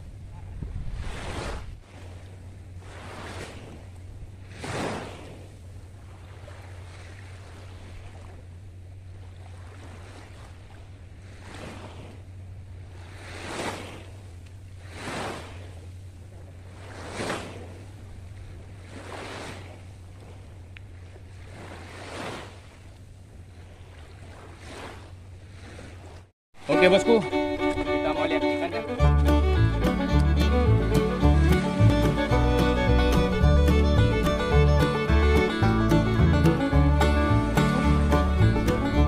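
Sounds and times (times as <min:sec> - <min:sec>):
small waves breaking on beach: 0:00.0 - 0:30.6.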